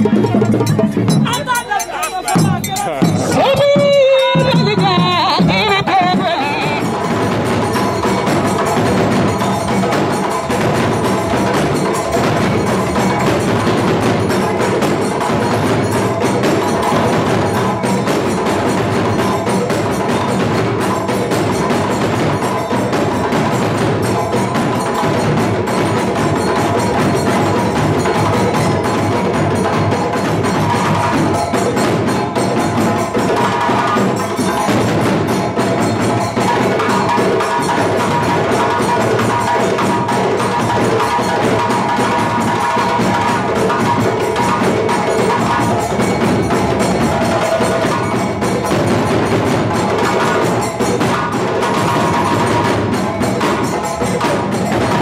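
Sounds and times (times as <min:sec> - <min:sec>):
djembes playing slaps and tones: 0:00.0 - 0:55.0
balafon wooden keys ringing: 0:00.7 - 0:04.4.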